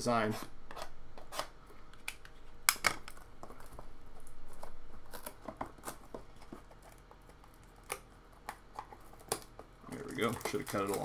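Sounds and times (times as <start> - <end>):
cardboard and plastic rustling: 2.4 - 11.0.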